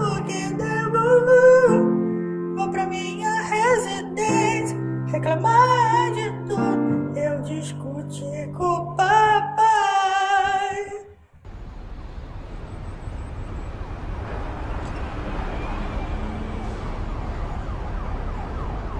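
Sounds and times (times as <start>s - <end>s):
distant city traffic rumble: 11.3s - 18.9s
faint siren: 11.5s - 18.9s.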